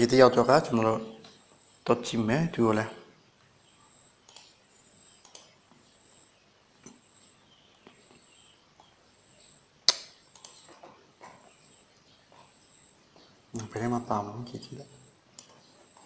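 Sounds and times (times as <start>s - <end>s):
low room hiss: 0.0s - 16.0s
computer mouse clicks: 4.2s - 11.0s, 15.3s - 16.0s.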